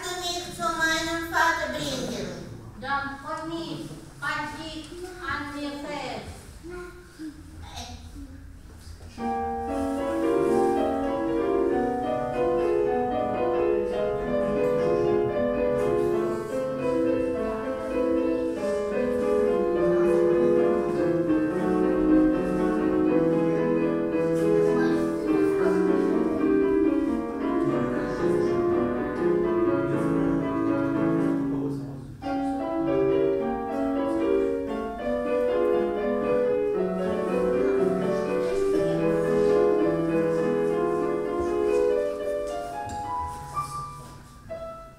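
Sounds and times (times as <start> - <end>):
piano music: 9.1 - 44.9.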